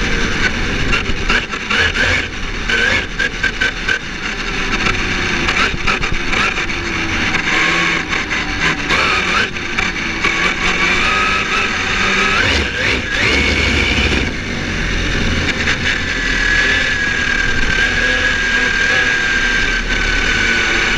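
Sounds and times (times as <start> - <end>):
road and wind noise: 0.0 - 20.9
electric motor whining: 4.6 - 20.9.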